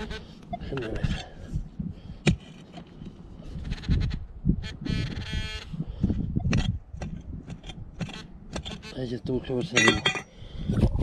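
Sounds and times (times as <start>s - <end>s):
hoe chopping dry dirt: 2.2s - 2.8s, 6.4s - 8.8s.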